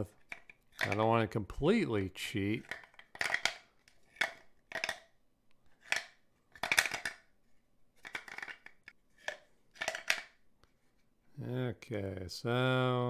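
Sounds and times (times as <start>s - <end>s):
wooden piece rattling in box: 2.6s - 5.0s, 5.8s - 7.3s, 8.0s - 10.3s.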